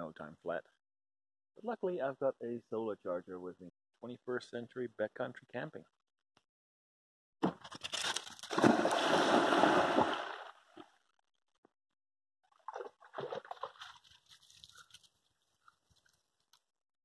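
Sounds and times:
dog splashing into water: 0:08.4 - 0:10.6, 0:12.6 - 0:14.4
water sloshing: 0:08.5 - 0:10.8, 0:12.5 - 0:14.6.

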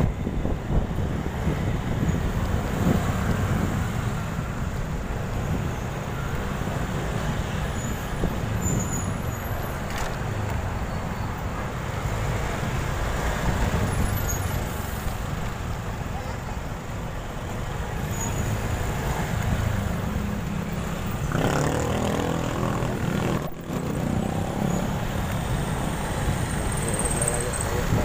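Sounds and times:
motorcycle engine and road noise: 0:00.0 - 0:28.0.

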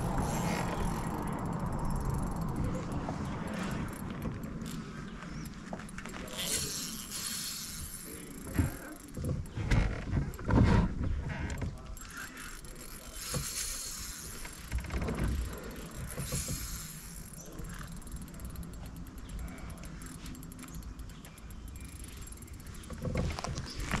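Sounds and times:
water moving along hull: 0:00.0 - 0:17.9.

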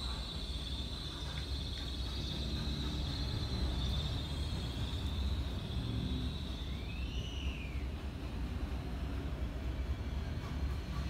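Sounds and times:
insects chirring: 0:00.0 - 0:07.8.

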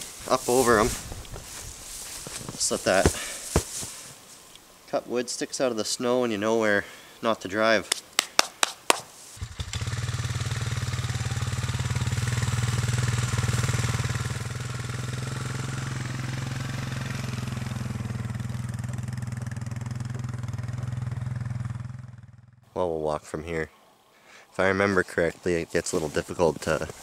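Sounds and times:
quad engine driving past: 0:09.4 - 0:22.6.

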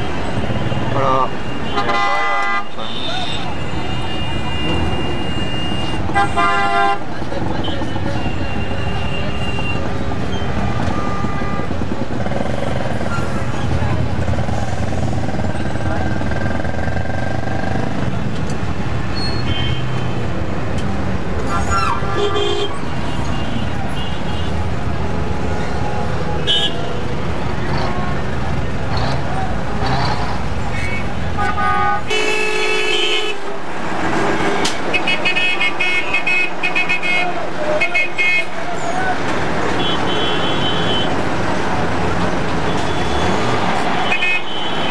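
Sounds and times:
bus and car engines running: 0:00.0 - 0:02.6, 0:03.4 - 0:44.9
vehicle horns honking: 0:00.0 - 0:11.8, 0:19.2 - 0:20.2, 0:21.5 - 0:24.6, 0:26.4 - 0:27.0, 0:30.7 - 0:33.5, 0:34.6 - 0:38.6, 0:39.7 - 0:41.3, 0:42.7 - 0:44.9
city traffic noise: 0:00.0 - 0:44.9.

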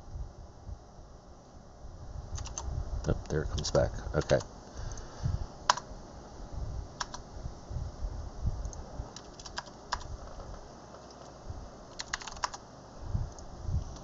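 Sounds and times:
keyboard keys tapping: 0:08.6 - 0:12.6.

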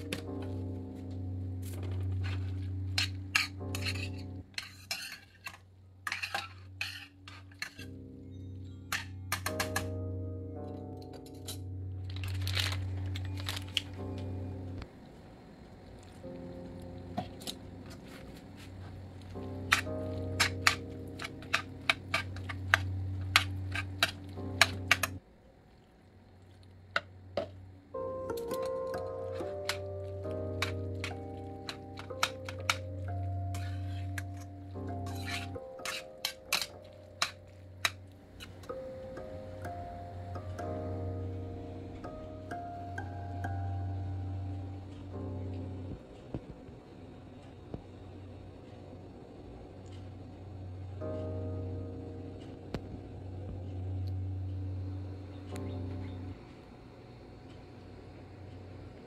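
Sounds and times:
background music: 0:00.0 - 0:04.5, 0:06.2 - 0:15.1, 0:16.2 - 0:25.2, 0:27.7 - 0:47.7, 0:50.4 - 0:56.7
spoon clinking and scraping pot: 0:02.2 - 0:07.9, 0:29.3 - 0:38.7.

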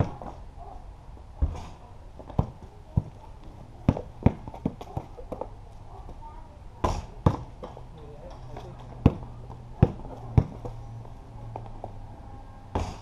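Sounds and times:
basketball thumping on concrete: 0:01.4 - 0:05.5, 0:06.8 - 0:07.8, 0:08.7 - 0:10.8, 0:12.7 - 0:13.0.

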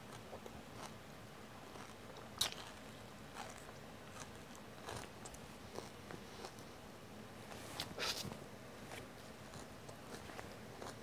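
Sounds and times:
person chewing celery crunchily: 0:00.0 - 0:06.7, 0:09.4 - 0:11.0.

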